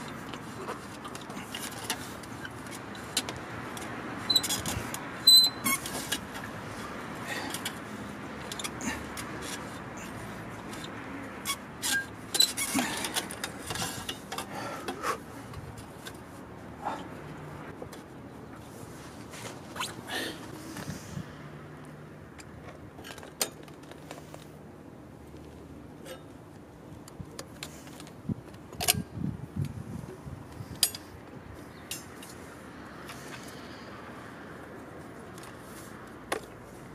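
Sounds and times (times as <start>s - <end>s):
exhaust pipe clicks and scrapes: 0.0s - 16.4s.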